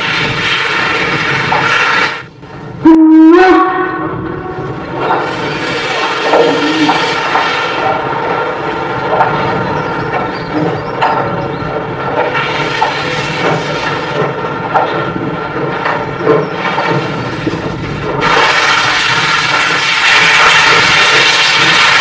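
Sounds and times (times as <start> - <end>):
steam locomotive chuffing: 0.0 - 22.0
steam hissing: 5.2 - 8.1, 16.5 - 22.0.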